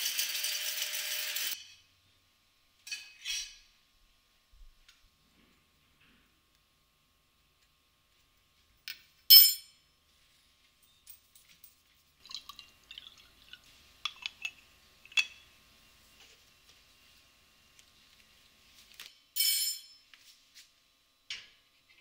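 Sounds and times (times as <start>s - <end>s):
water trickling into pot: 12.2s - 14.6s.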